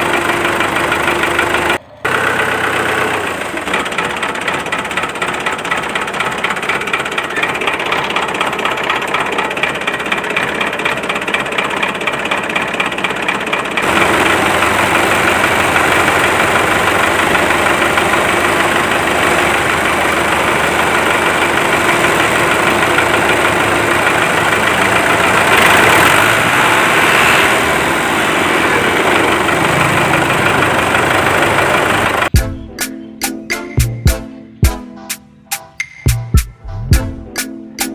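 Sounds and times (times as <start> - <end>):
motor running with pulsing beat: 4.0 - 18.2, 36.1 - 37.9.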